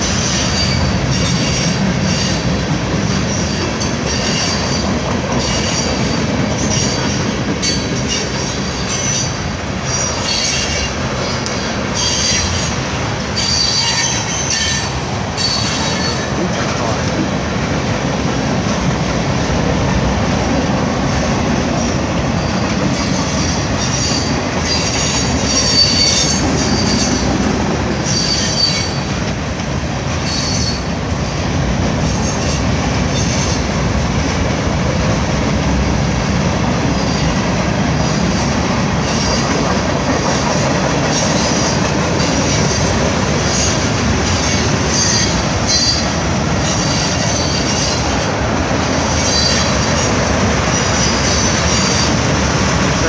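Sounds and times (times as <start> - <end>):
train wheels rumbling on rails: 0.0 - 53.0
high wheel squeals: 5.4 - 16.4, 22.4 - 27.3, 28.0 - 29.1, 30.2 - 31.0, 41.1 - 48.2, 49.0 - 52.2.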